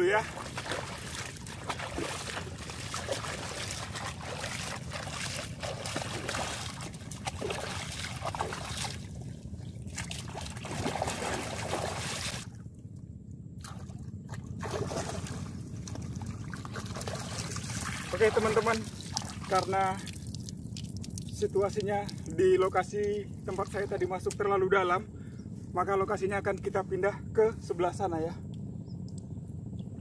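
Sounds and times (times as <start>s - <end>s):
seawater splashing and sloshing: 0.0s - 12.7s, 13.6s - 22.5s.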